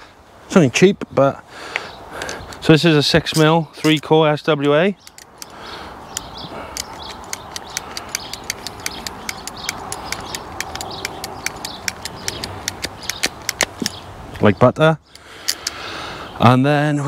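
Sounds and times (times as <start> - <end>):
ratchet cable cutter clicking: 5.0 - 14.0, 15.1 - 15.8.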